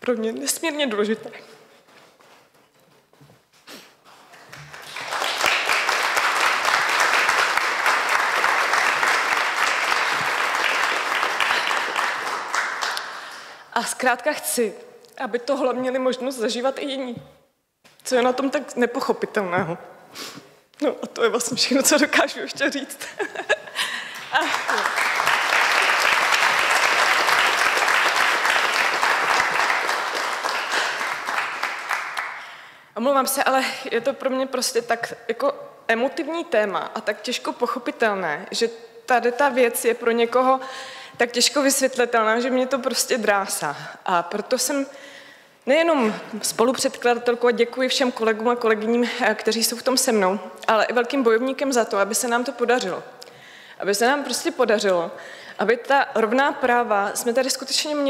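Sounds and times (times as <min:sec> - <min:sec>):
audience applauding: 0:04.4 - 0:13.4, 0:23.8 - 0:32.6.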